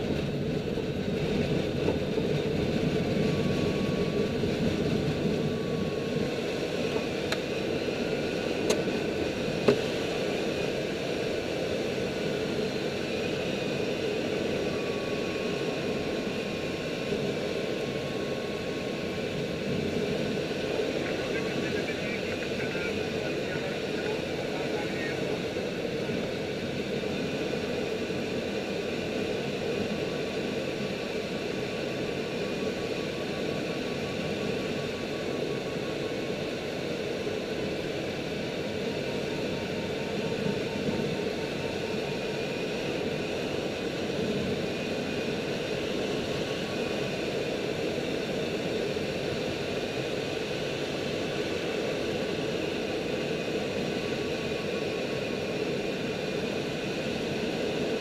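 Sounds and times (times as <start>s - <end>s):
rushing airflow in cockpit: 0.0s - 58.0s
faint high wavering tone: 3.1s - 8.4s, 13.4s - 25.3s.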